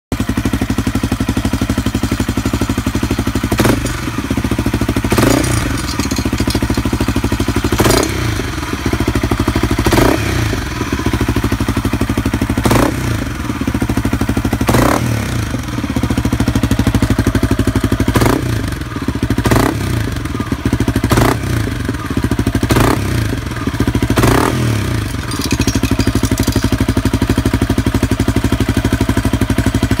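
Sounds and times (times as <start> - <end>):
motorcycle engine idling: 0.1 - 30.0
sharp metallic clink: 3.5 - 8.3, 24.2 - 27.1.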